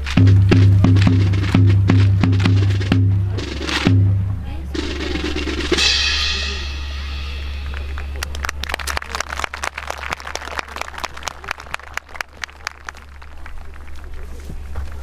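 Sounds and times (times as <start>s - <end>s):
scattered applause: 7.6s - 15.0s.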